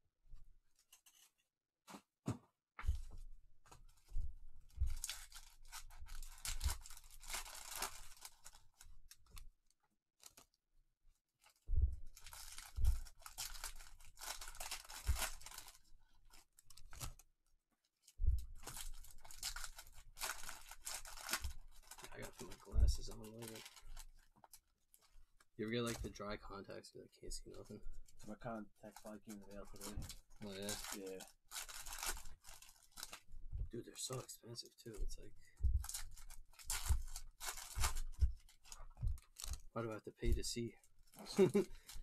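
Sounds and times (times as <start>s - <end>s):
plastic shrink-wrap crinkling: 3.8s - 9.5s, 11.4s - 17.2s, 17.9s - 26.2s, 27.4s - 33.3s, 35.8s - 42.0s.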